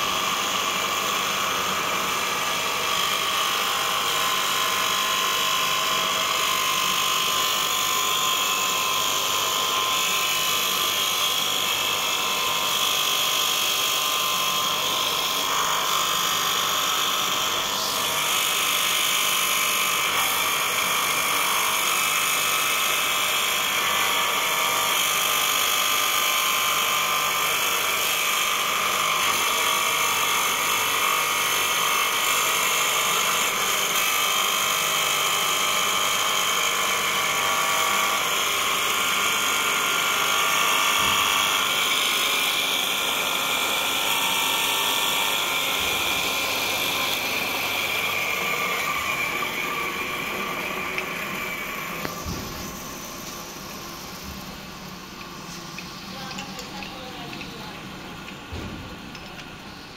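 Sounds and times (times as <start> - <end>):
machine motor running: 0.0 - 59.9
grinding wheel hiss on metal: 39.5 - 58.8.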